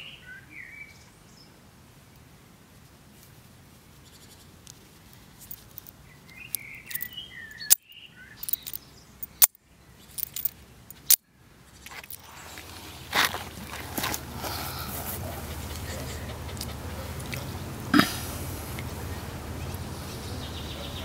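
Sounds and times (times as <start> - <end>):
faint birds chirping: 0.0 - 21.0
magnetic buckle clicking: 8.4 - 9.6.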